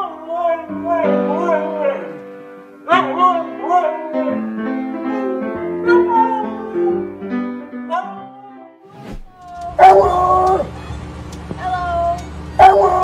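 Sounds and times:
piano chords: 0:00.0 - 0:08.9
dog howling: 0:02.9 - 0:07.1, 0:09.4 - 0:10.8, 0:11.6 - 0:13.0.

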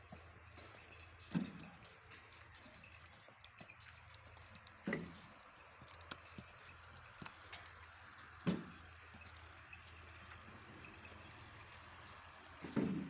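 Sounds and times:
light clicks and clinks: 0:00.0 - 0:13.0.

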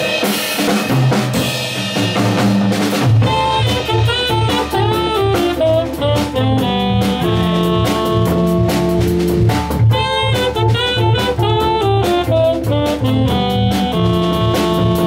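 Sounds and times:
drum kit swing beat: 0:00.0 - 0:15.0
electric guitar: 0:03.1 - 0:15.0
organ playing chords and bass: 0:03.2 - 0:15.0.

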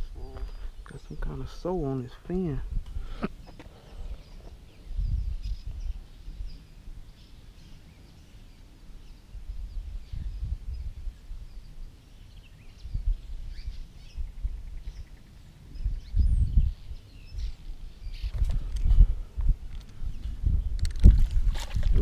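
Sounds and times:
bird chirps and calls: 0:03.0 - 0:18.7.

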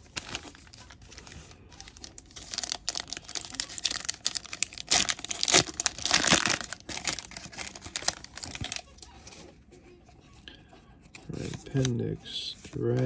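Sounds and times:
foil wrappers crinkling and tearing: 0:00.0 - 0:09.4.

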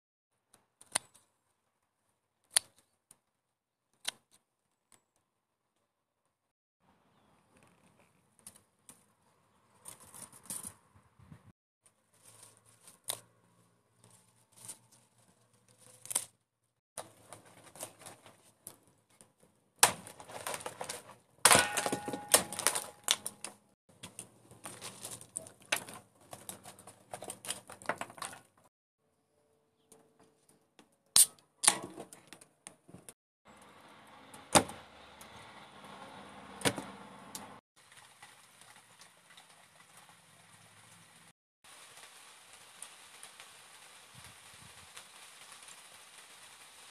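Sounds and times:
rustling and handling noise: 0:11.8 - 0:28.7
kindling being split: 0:19.8 - 0:28.6.

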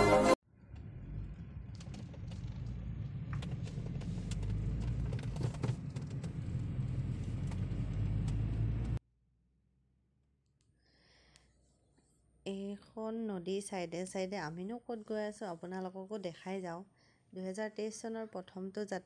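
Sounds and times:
road and engine rumble: 0:00.4 - 0:09.0.

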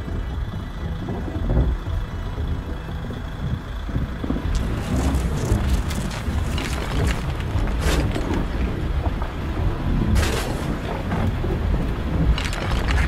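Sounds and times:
wind rumble on microphone: 0:00.0 - 0:13.0
soil and gravel pouring: 0:04.5 - 0:09.0, 0:10.1 - 0:11.1, 0:12.3 - 0:13.0.

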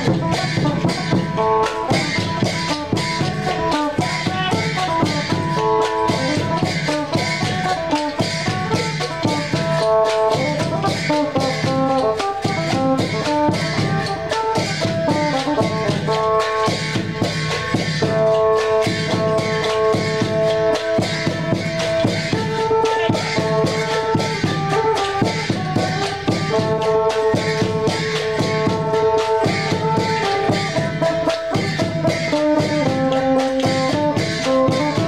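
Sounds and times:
barrel drum: 0:00.0 - 0:35.0.

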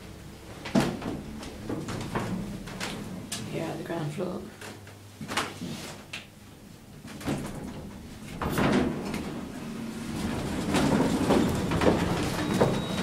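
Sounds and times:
lift doors sliding open: 0:07.5 - 0:13.0.

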